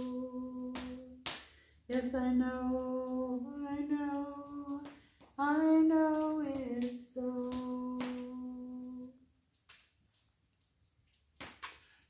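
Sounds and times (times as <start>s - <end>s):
woman singing a lullaby: 0.0s - 1.2s, 1.9s - 9.2s.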